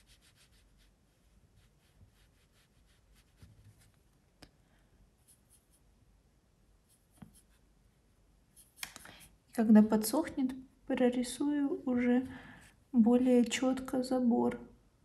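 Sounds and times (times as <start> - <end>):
brush strokes on paper: 0.0 - 4.1, 5.2 - 5.9, 6.8 - 7.7, 8.5 - 9.5
brush dabbing in palette: 0.0 - 4.4, 5.2 - 5.9, 6.8 - 7.7, 8.5 - 9.5.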